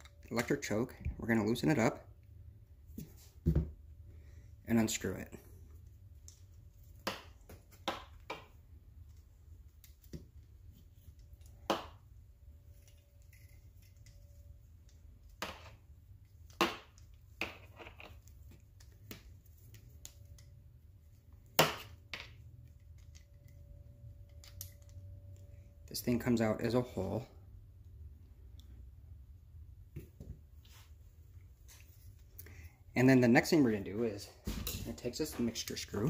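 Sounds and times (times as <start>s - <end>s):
steady low hum: 18.2s - 36.0s.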